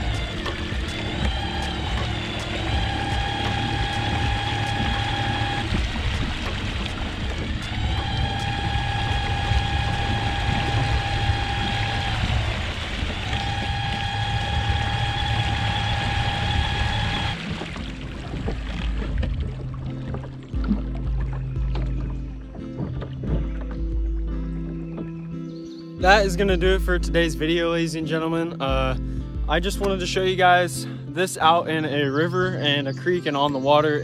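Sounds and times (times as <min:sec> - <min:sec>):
electric outboard motor whine: 0:00.0 - 0:25.2
water noise: 0:00.0 - 0:26.6
wind: 0:00.0 - 0:26.6.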